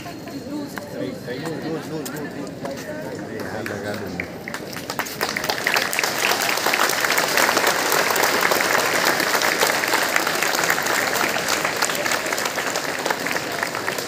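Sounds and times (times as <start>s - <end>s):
children applauding: 3.5s - 14.0s.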